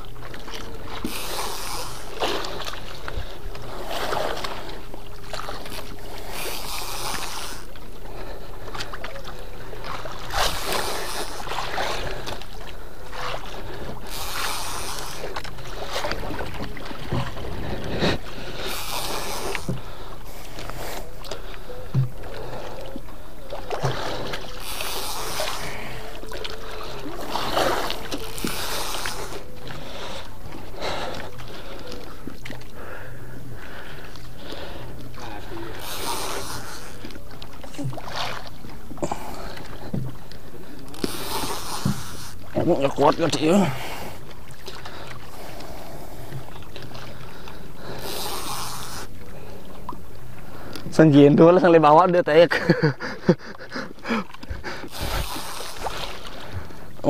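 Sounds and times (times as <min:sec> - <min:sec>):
faint steady hum: 0:00.0 - 0:57.0
water lapping against boat hull: 0:00.0 - 0:57.0
water swishes: 0:00.0 - 0:57.0
rush of hiss: 0:24.6 - 0:25.8, 0:35.8 - 0:37.0, 0:54.9 - 0:55.9.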